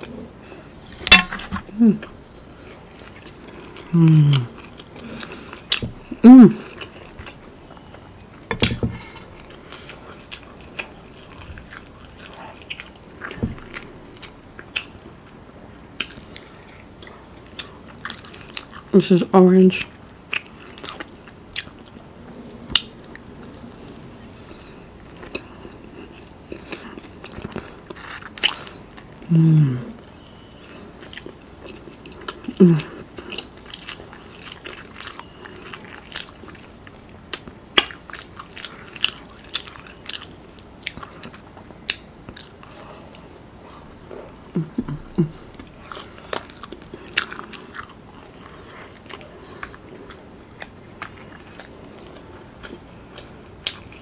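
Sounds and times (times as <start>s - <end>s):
chewing and crunching: 0.0s - 29.3s, 30.0s - 54.0s
person humming: 1.7s - 2.0s, 3.9s - 4.5s, 6.2s - 6.6s, 29.3s - 30.0s, 32.6s - 32.9s, 44.6s - 45.4s.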